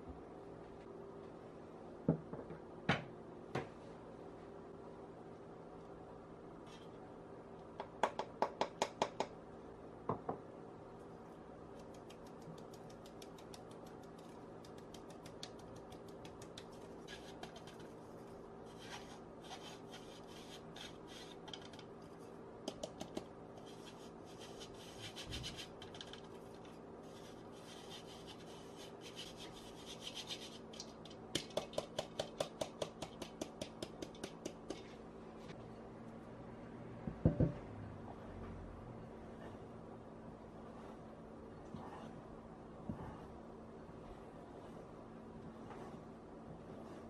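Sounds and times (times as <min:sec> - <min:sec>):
flour sifted through metal sieve: 0:40.4 - 0:47.0.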